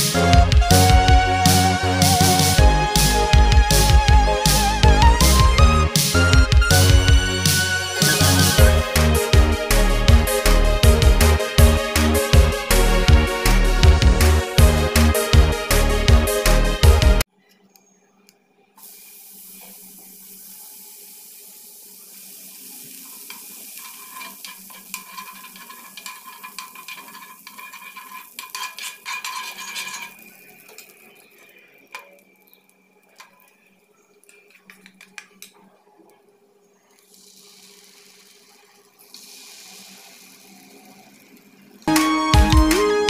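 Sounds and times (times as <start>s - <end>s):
fat sizzling on a griddle: 18.8s - 34.8s, 36.9s - 41.9s
metal spoon scraping: 23.3s - 32.0s.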